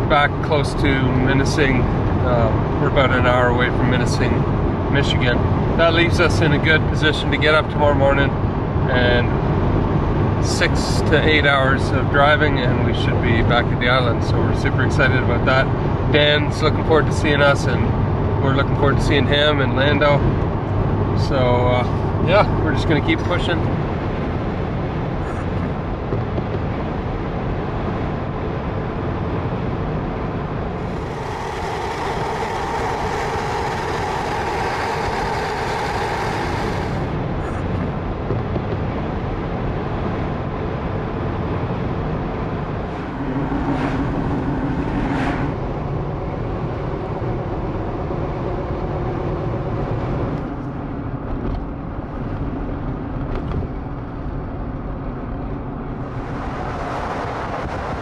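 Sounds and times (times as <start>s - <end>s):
road and tyre noise: 0.0s - 58.0s
steady hums: 29.8s - 38.1s, 41.9s - 48.2s.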